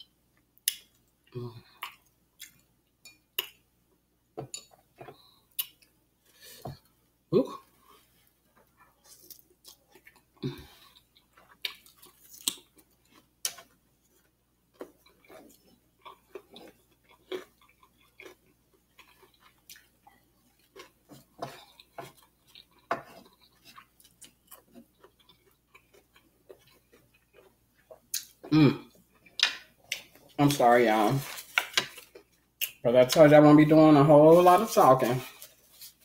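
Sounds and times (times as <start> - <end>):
close chewing with wet smacks: 0.6 - 2.6, 8.6 - 30.2.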